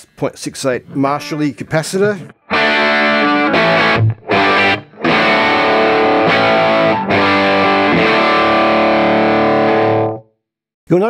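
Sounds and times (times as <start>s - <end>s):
electric guitar strummed chords: 2.2s - 10.2s.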